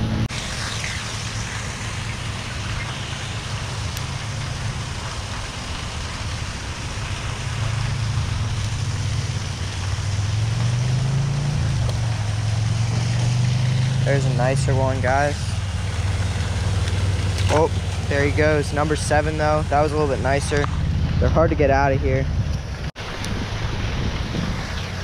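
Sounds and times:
motor engine humming: 0:00.0 - 0:25.0
broad hiss: 0:00.3 - 0:16.4.

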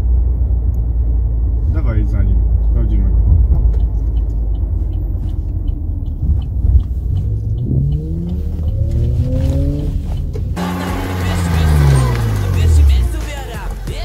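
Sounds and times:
car engine and road rumble: 0:00.0 - 0:14.0
faint regular ticking: 0:03.7 - 0:10.6.

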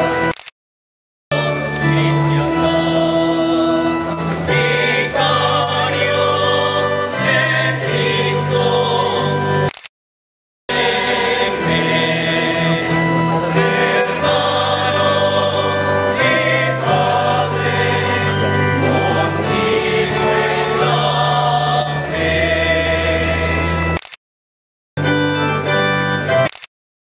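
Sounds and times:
choir singing long notes: 0:01.3 - 0:09.7, 0:10.7 - 0:24.0.

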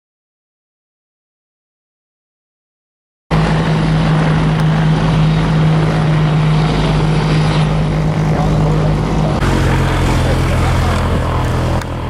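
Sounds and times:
aircraft engines droning: 0:03.3 - 0:12.0.

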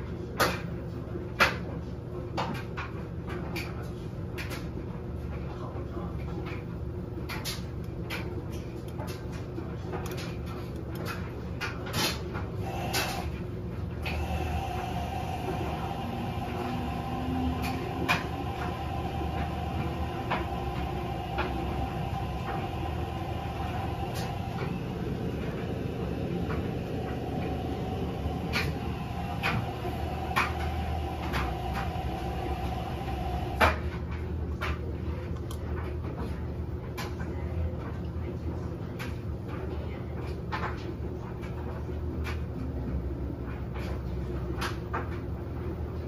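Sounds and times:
washing machine motor hum: 0:00.0 - 0:46.0
steady whine: 0:12.6 - 0:34.7.

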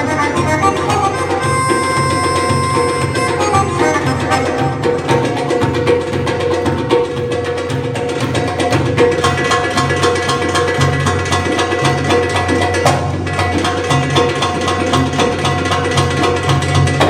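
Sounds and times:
sustained keyboard notes: 0:00.0 - 0:05.4
goblet and frame drums playing: 0:00.0 - 0:17.0.

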